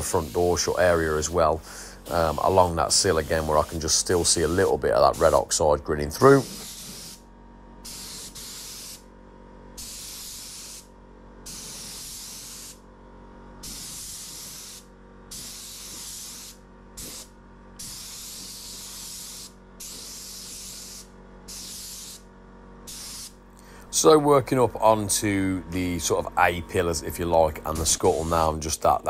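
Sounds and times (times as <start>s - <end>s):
spray gun hissing bursts: 0.0s - 5.6s, 6.2s - 7.2s, 7.9s - 9.0s, 9.8s - 10.9s, 11.5s - 12.8s, 13.6s - 22.2s, 22.9s - 23.4s.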